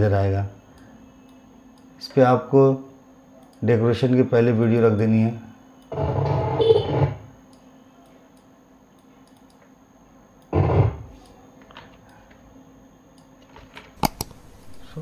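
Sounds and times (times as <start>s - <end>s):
computer mouse clicks: 7.5s - 9.7s, 13.2s - 14.8s.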